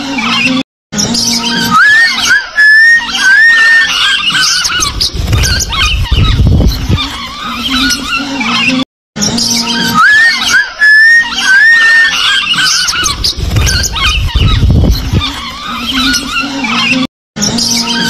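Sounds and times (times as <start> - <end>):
lovebirds chattering: 1.1 - 8.8, 9.4 - 18.0
low rumble: 4.9 - 7.4, 13.1 - 15.4.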